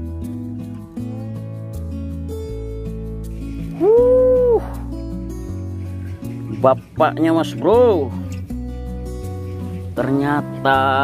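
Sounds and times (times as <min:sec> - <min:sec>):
acoustic guitar music: 0:00.0 - 0:11.0.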